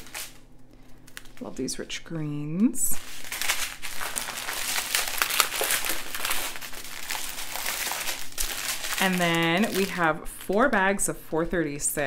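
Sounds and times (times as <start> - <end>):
plastic packaging crinkling: 0.0 - 2.0, 2.9 - 11.0.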